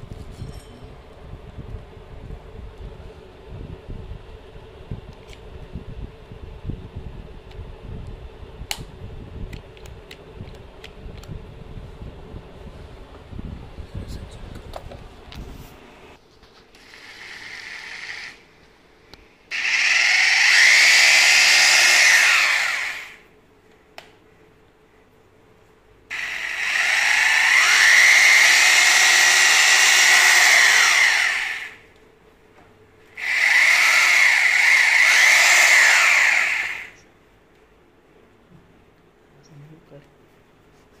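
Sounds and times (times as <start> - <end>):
hammer drill spinning: 16.7 - 18.4, 19.5 - 23.2, 26.1 - 31.9, 33.2 - 37.0.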